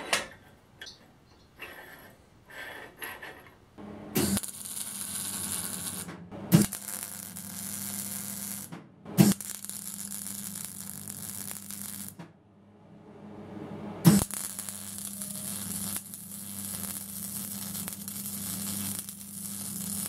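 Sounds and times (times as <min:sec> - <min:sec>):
sharp crack of arc striking: 0:04.1 - 0:12.2, 0:14.0 - 0:20.0
welding arc crackling hiss: 0:04.2 - 0:12.2, 0:14.0 - 0:20.0.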